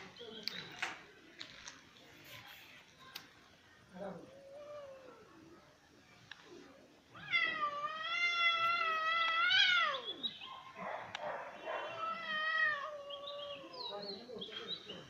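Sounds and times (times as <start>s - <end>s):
cat yowling: 7.2s - 10.3s, 11.8s - 13.9s.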